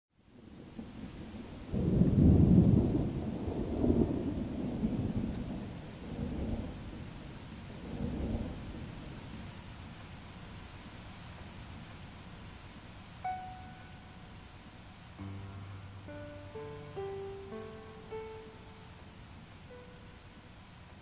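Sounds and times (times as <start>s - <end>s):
steady rain: 0.1s - 21.0s
thunder rumbling: 0.4s - 9.7s.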